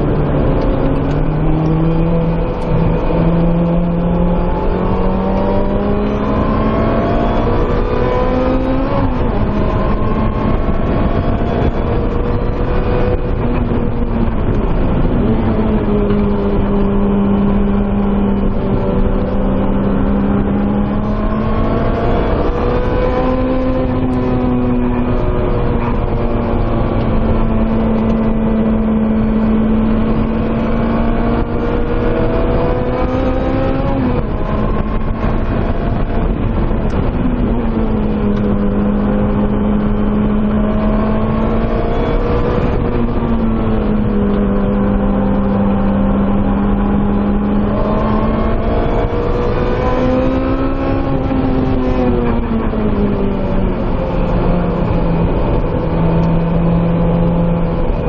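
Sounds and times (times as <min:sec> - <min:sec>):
car engine revving high: 0:00.0 - 0:58.0.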